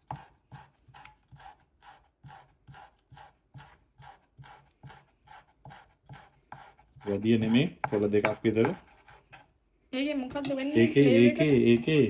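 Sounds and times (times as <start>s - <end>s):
knife tapping on wooden cutting board: 7.8s - 8.8s.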